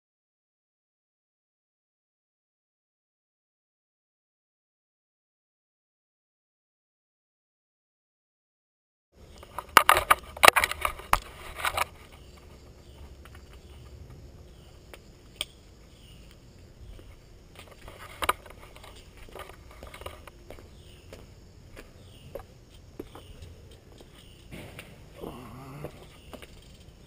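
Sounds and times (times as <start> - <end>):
shoe cleats clicking on stone: 9.3 - 25.0
camera handling rustling and knocks: 9.4 - 12.2, 17.6 - 20.4
faint chirps: 12.0 - 17.4, 19.8 - 27.0.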